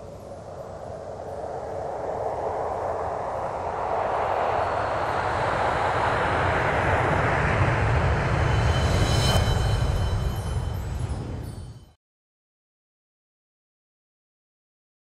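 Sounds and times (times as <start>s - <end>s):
cinematic whoosh: 2.0s - 11.9s
sharp hit with ringing shimmer: 8.4s - 12.0s.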